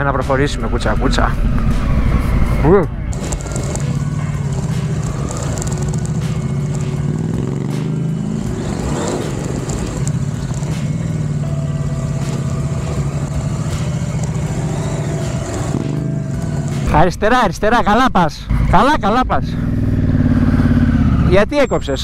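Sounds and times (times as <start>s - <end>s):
motorcycle engine running: 1.0s - 17.1s, 18.5s - 22.0s.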